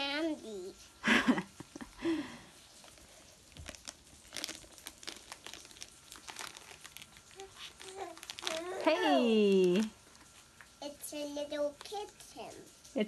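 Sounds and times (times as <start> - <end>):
gift wrapping crinkling and tearing: 2.0 - 10.6.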